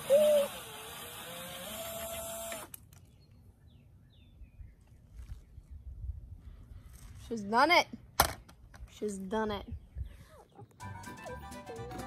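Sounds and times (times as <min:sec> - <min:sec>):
cordless drill motor whine: 0:00.0 - 0:02.8.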